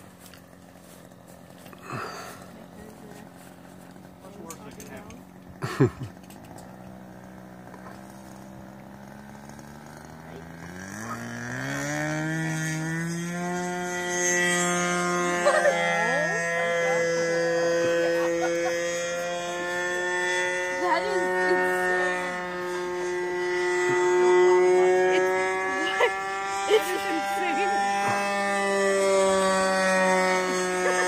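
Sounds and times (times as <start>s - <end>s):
model aircraft motor and propeller: 0.0s - 31.0s.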